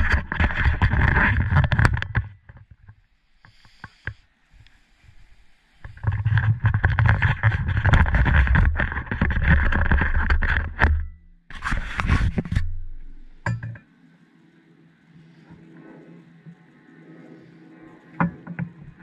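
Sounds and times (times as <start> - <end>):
camera handling rubbing and scraping: 0.0 - 2.9, 5.8 - 13.3.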